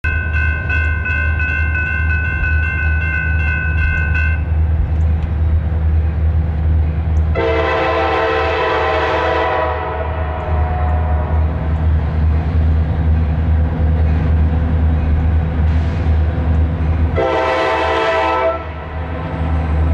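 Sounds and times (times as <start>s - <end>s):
crossing bell ringing: 0.0s - 4.7s
locomotive air horn blast: 7.4s - 11.7s, 17.2s - 19.0s.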